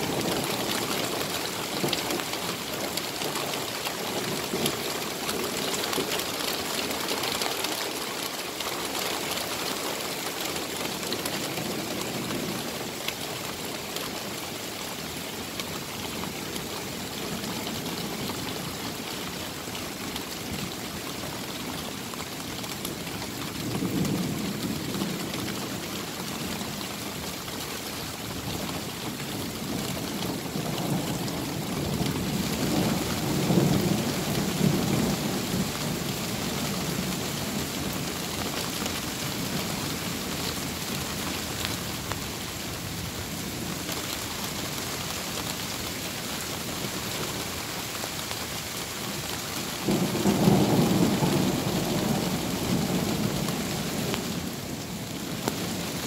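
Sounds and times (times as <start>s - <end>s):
torrential rain: 0.0s - 56.0s
low thunder rumbling: 49.8s - 56.0s.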